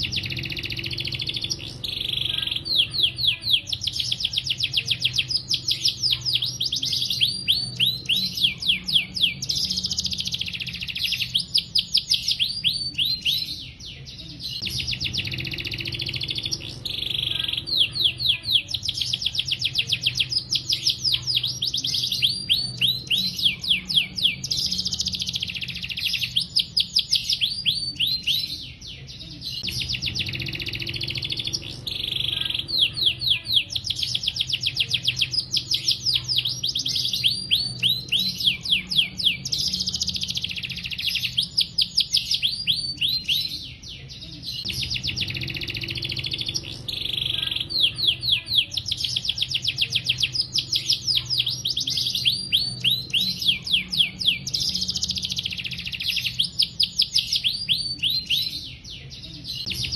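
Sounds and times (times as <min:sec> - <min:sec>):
faint low hum: 0:00.0 - 0:56.7
canary singing trills: 0:00.0 - 0:59.9.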